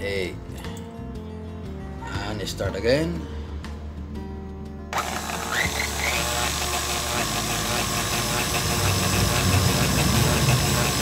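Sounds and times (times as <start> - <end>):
stand mixer running: 5.0 - 11.0
whisk ticking: 5.0 - 11.0.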